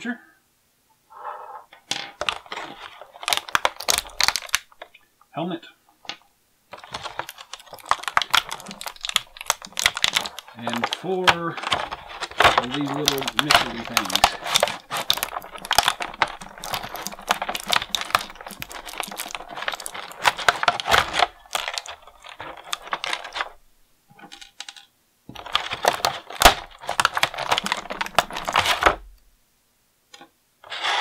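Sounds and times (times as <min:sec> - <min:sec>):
plastic pieces clicking on a table: 0:01.8 - 0:04.9, 0:06.0 - 0:29.2
plastic bag crinkling: 0:02.1 - 0:05.0, 0:06.7 - 0:24.5, 0:25.3 - 0:29.2.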